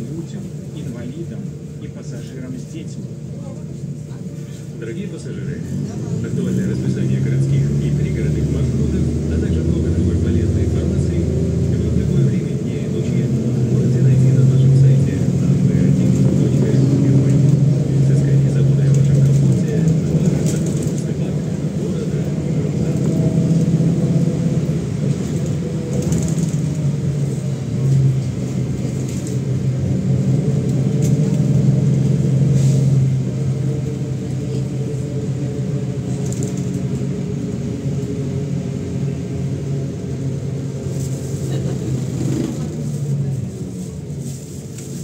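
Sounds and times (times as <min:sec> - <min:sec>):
bus diesel engine drone: 0:00.0 - 0:45.0
road noise: 0:00.0 - 0:45.0.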